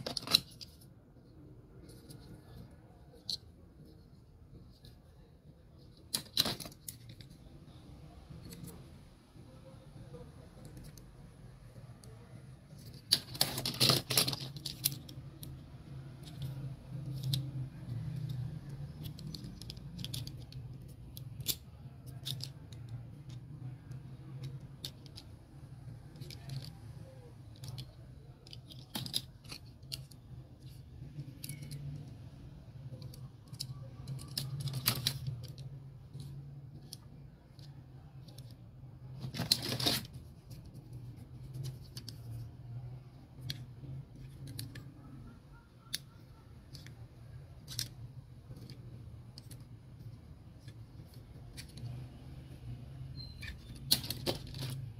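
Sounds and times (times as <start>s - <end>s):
toy cars clicking and rattling: 0.0s - 54.9s
scraping rustles: 33.0s - 42.8s.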